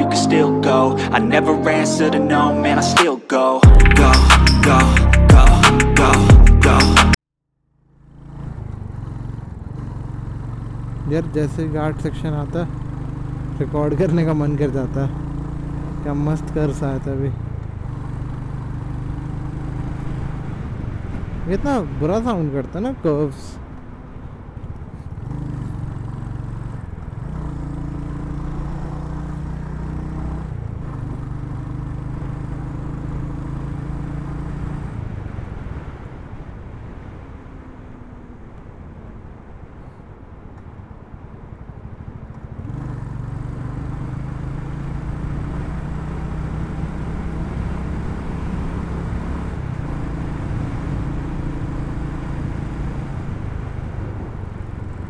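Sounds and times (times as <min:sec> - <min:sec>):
road and wind noise: 0:00.0 - 0:55.0
motorcycle engine running: 0:07.7 - 0:21.4, 0:23.6 - 0:35.2, 0:40.7 - 0:55.0.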